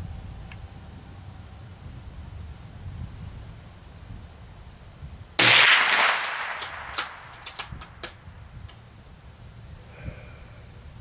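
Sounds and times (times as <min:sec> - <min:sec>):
rifle shot with ringing tail: 0:05.4 - 0:07.4.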